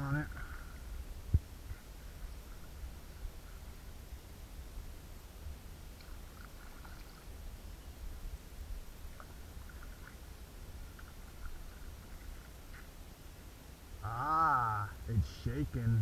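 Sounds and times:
steady low rumble: 0.0 - 16.0
paddle dipping and dripping: 5.8 - 7.8, 8.8 - 13.4.

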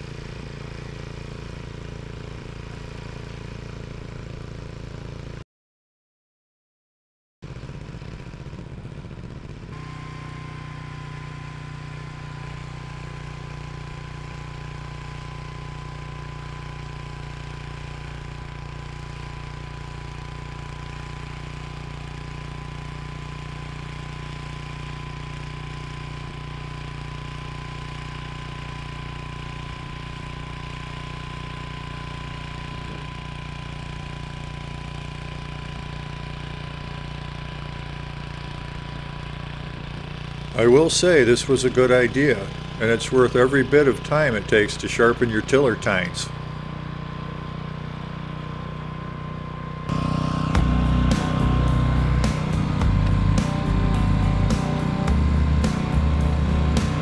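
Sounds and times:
tiller engine running: 0.0 - 5.4, 7.4 - 57.0
high-pitched whine: 49.8 - 57.0.

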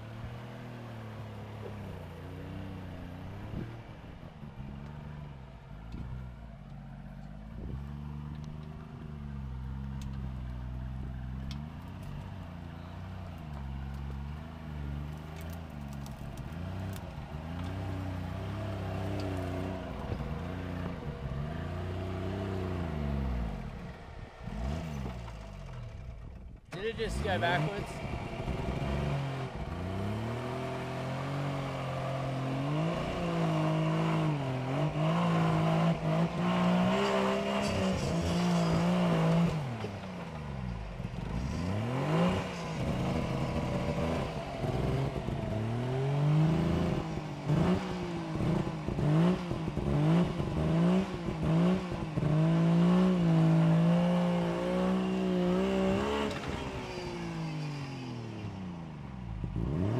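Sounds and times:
engine revving under load: 13.0 - 59.9.

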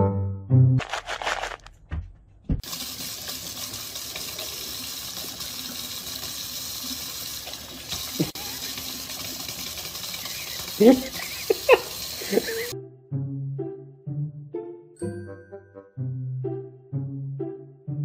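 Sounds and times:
faucet running into sink: 2.6 - 12.8.

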